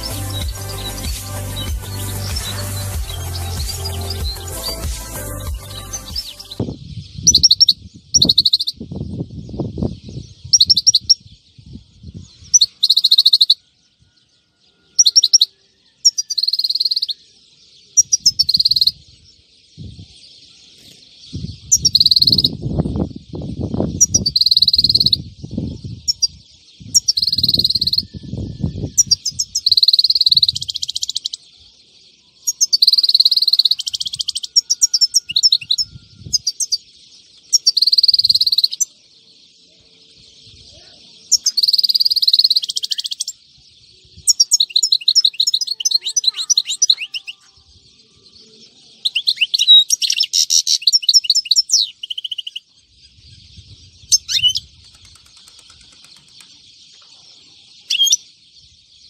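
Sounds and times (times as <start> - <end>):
rapid bird trill: 0.0 - 8.9, 12.4 - 13.7, 14.9 - 19.1, 20.6 - 31.5, 32.4 - 39.0, 40.5 - 43.4, 44.2 - 47.5, 49.1 - 57.1
finch twittering song: 0.0 - 59.0.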